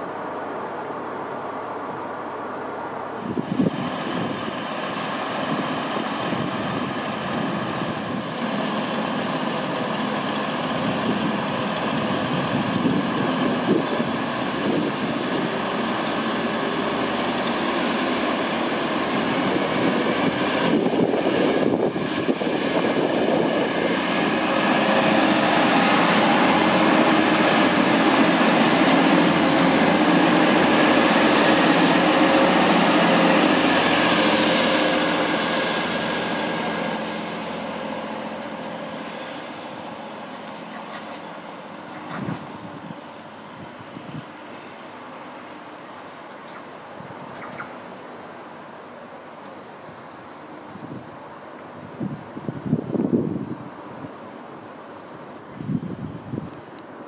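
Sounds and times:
train diesel engines running: 0.0s - 57.0s
high whine: 55.4s - 56.9s.

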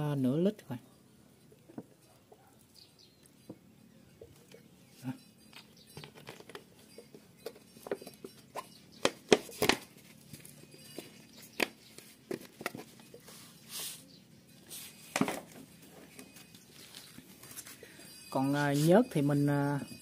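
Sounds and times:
plastic bottles clicking and tapping: 5.6s - 13.2s.

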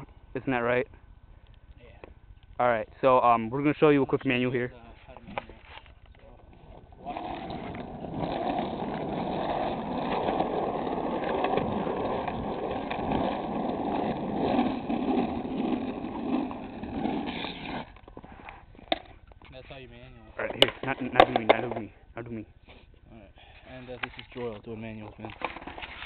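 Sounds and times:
skateboard wheels on asphalt: 5.4s - 19.2s, 25.3s - 26.0s.

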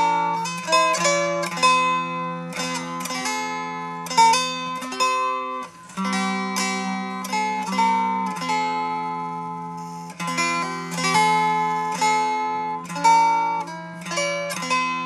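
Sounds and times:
plucked string instrument: 0.0s - 15.0s.

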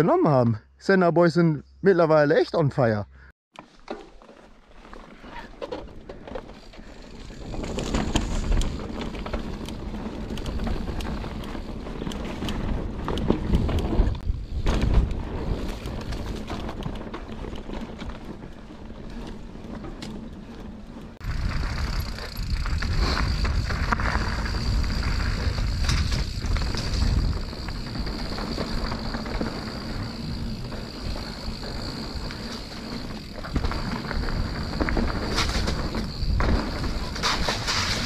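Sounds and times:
wind rushing over microphone: 21.2s - 32.4s
bike clattering over ground: 21.5s - 38.0s.

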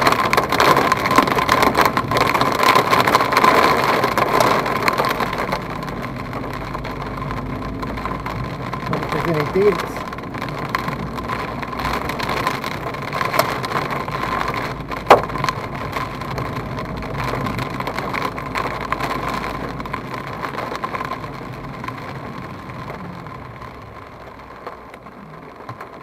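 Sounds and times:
car engine and tyres: 0.0s - 26.0s
rain and hail on car roof: 0.0s - 26.0s
sharp loud knock: 15.1s - 15.4s.

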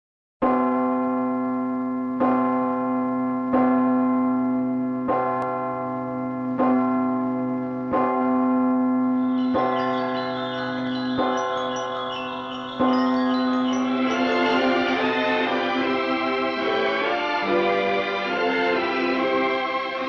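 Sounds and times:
large bell tolling: 0.5s - 20.0s
higher chime notes: 9.2s - 20.0s.

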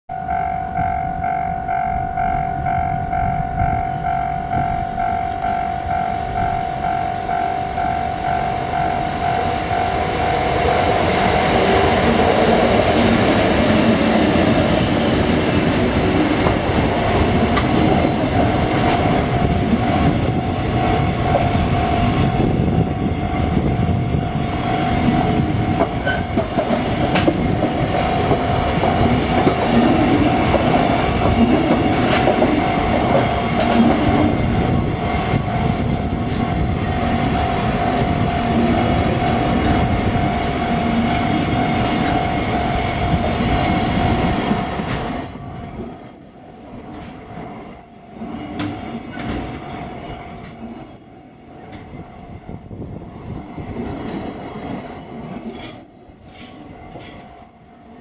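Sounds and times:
train wheels clattering over rails: 10.2s - 45.9s
high wheel squeal: 41.1s - 58.0s.

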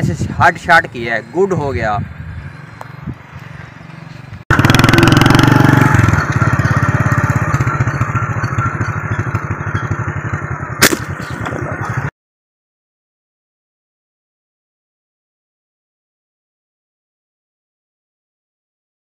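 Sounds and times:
small motorcycle engine running: 2.3s - 12.1s.

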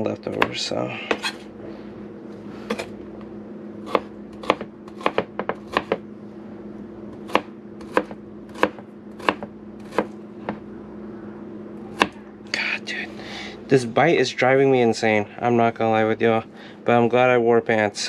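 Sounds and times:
steady hum: 0.0s - 18.0s
knife chopping on cutting board: 0.3s - 1.4s, 3.8s - 6.0s, 7.2s - 10.6s.

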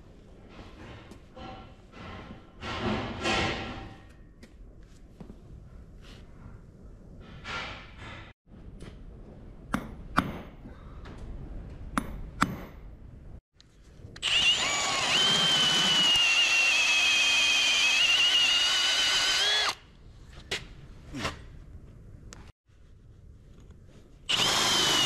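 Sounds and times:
hammer striking metal punch: 9.7s - 10.6s, 12.0s - 12.9s
electric drill whining: 14.2s - 19.8s, 24.3s - 25.0s.

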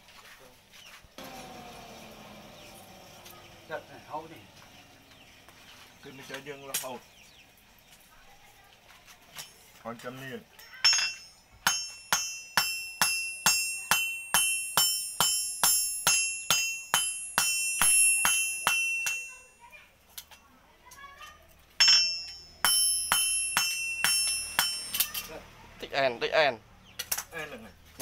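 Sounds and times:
hammer striking metal on anvil: 10.8s - 19.5s, 21.8s - 25.3s.

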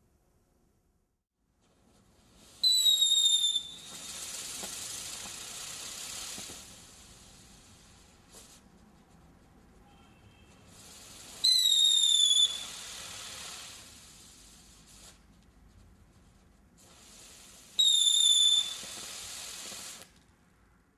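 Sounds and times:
firework hissing: 1.8s - 8.6s, 10.5s - 15.3s, 16.7s - 20.2s
shrill firework whistles: 2.4s - 8.5s, 9.8s - 15.2s, 16.8s - 20.1s.

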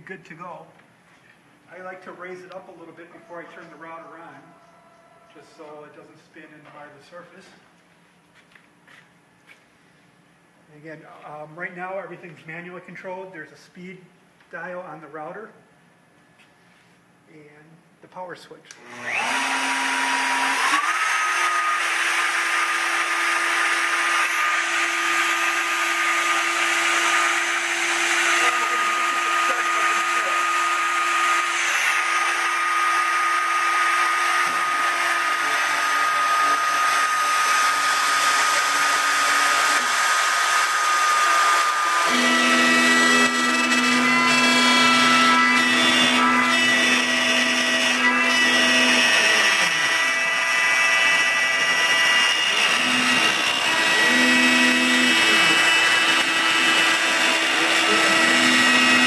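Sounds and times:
wood router high whine: 1.8s - 6.0s, 18.8s - 59.0s
higher tone: 2.0s - 5.5s.

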